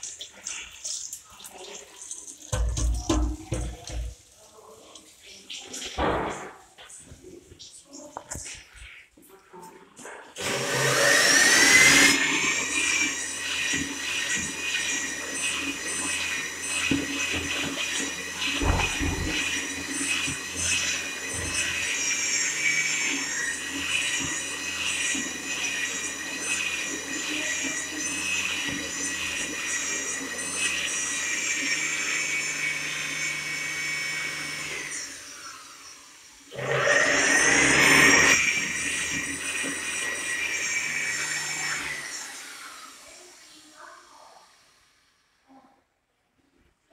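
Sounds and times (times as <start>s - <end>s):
hand dryer whine and air rush: 10.4s - 44.6s.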